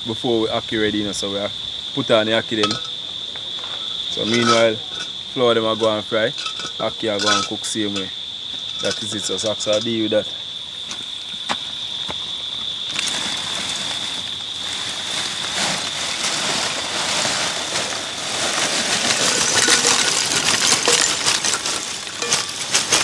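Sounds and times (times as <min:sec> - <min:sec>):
cricket trilling: 0:00.0 - 0:23.0.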